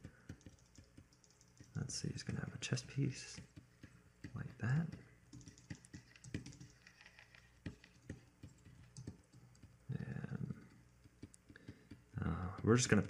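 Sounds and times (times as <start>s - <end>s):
keyboard keys clicking: 0.0s - 12.0s
low voice hum: 9.9s - 10.8s, 12.2s - 13.0s.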